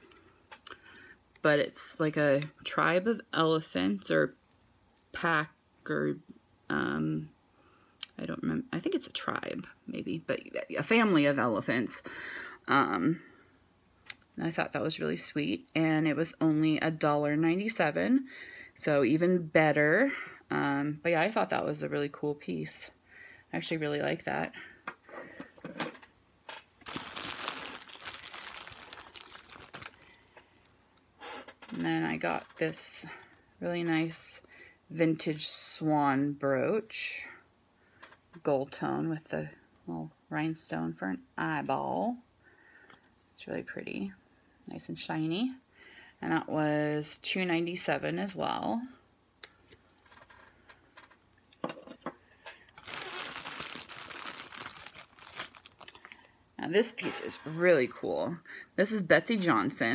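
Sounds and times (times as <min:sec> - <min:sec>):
plastic bags rustling: 0:25.6 - 0:30.8, 0:52.6 - 0:56.4.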